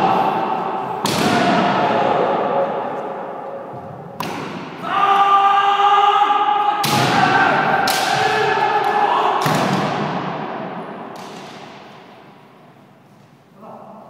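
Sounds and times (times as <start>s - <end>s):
people shouting: 0.0s - 10.4s.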